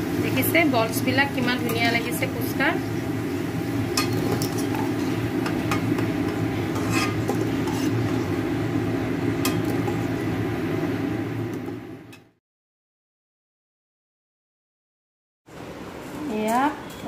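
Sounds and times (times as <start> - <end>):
metal spoon clinking against pan: 4.0 - 8.1, 9.4 - 10.0.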